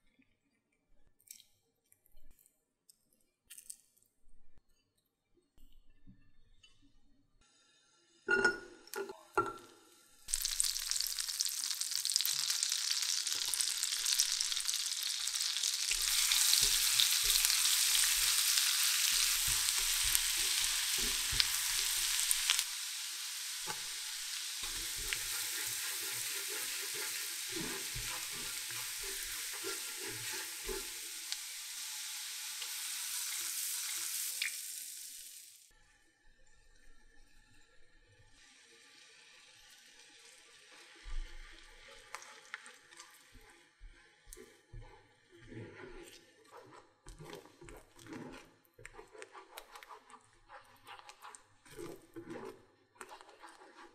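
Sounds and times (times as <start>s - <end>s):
garlic sizzling in butter: 10.3s - 35.7s, 40.5s - 53.9s.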